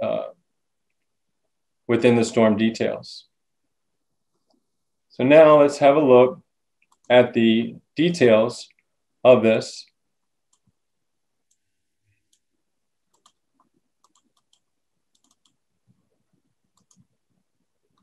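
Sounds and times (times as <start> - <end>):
faint computer mouse clicks: 13.1 - 15.6, 16.8 - 17.1.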